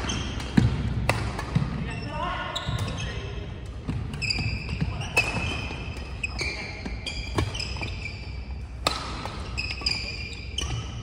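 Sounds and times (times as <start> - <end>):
racket hitting shuttlecock: 0.0 - 1.8, 8.6 - 11.0
shoes squeaking on court: 1.5 - 11.0.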